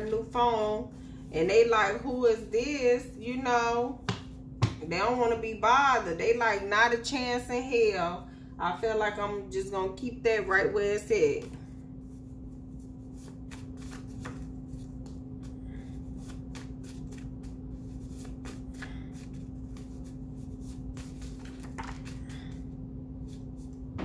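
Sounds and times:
steady low hum: 0.0s - 24.0s
cards shuffled by hand: 12.8s - 23.8s.

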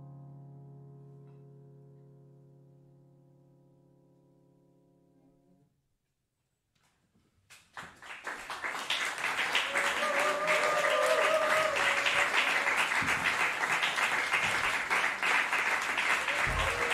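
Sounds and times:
audience applauding: 7.7s - 16.9s
person cheering: 9.5s - 13.3s, 15.8s - 16.9s.

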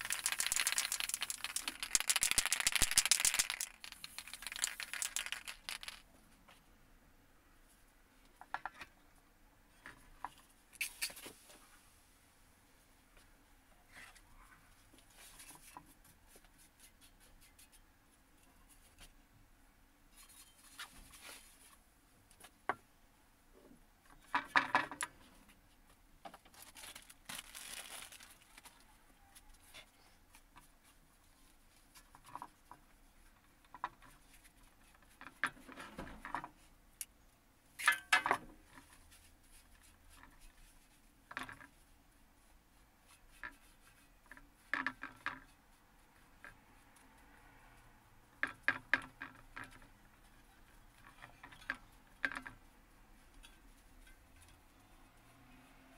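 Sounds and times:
scraping and rubbing on metal: 20.1s - 21.7s.

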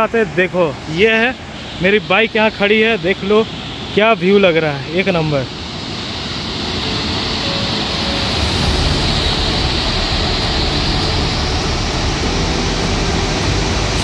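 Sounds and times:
waterfall rushing: 0.0s - 14.0s
deep low rumble: 8.0s - 14.0s.

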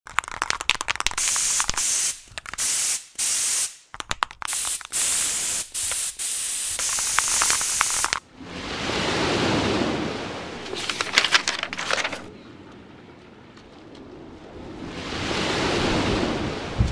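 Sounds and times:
crackling clicks: 0.0s - 2.6s, 3.9s - 5.1s, 5.8s - 8.2s
spray can hissing: 1.1s - 8.2s
sharp clicks: 3.9s - 5.1s, 6.7s - 8.2s.

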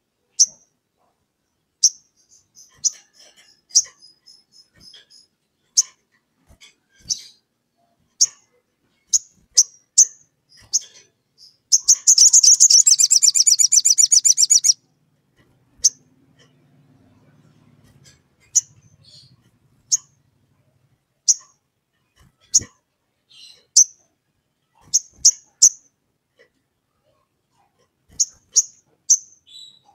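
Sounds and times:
bird chipping and trilling: 9.1s - 14.8s, 28.1s - 29.9s.

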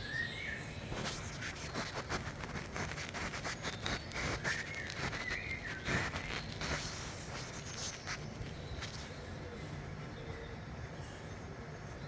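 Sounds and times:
birdsong through tv speaker: 0.0s - 12.0s
rustling: 0.9s - 9.2s.

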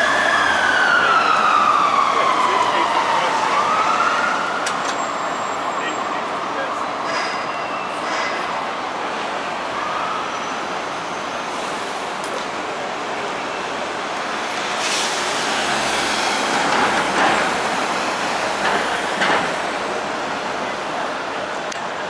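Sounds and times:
vehicles going by: 0.0s - 22.0s.

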